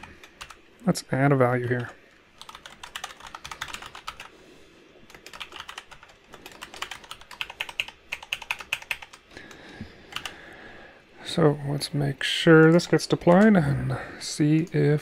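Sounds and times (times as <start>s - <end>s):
keyboard typing: 0.0s - 0.6s, 1.7s - 4.3s, 5.1s - 10.4s.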